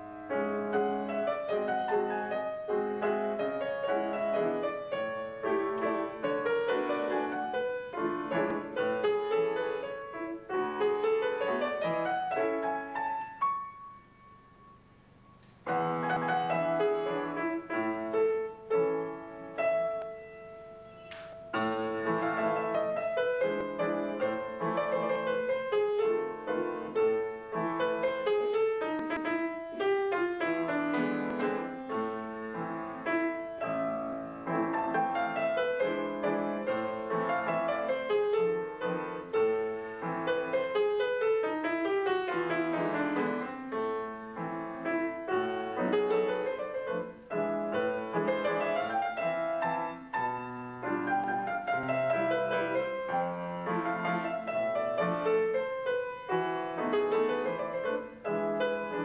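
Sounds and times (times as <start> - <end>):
fast piano piece: 0.0 - 14.9, 15.6 - 59.0.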